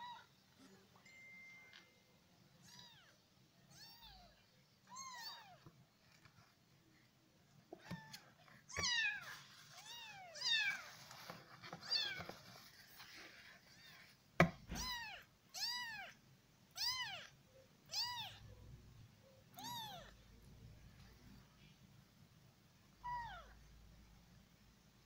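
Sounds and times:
kitten meowing: 14.7s - 17.3s, 17.9s - 18.4s, 19.6s - 20.1s.

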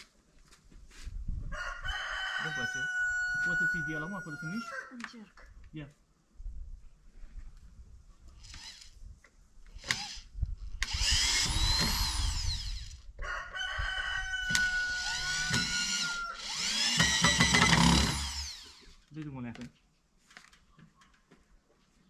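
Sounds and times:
rooster crowing: 1.5s - 5.0s, 13.2s - 17.5s.

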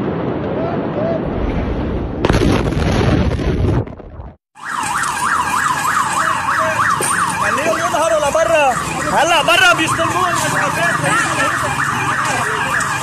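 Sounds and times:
explosion blast: 0.0s - 4.4s
second sweeping siren tone: 4.6s - 13.0s
siren wailing in fast yelp: 4.6s - 13.0s.

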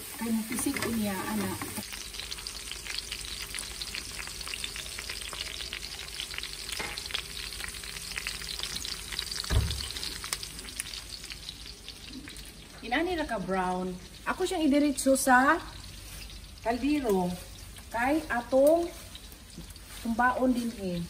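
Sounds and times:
pork sizzling in fat: 0.0s - 21.0s
low thump: 9.5s - 9.9s.

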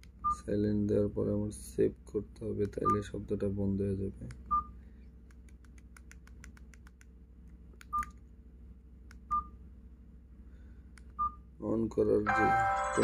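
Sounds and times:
phone buttons clicking: 5.3s - 7.1s.

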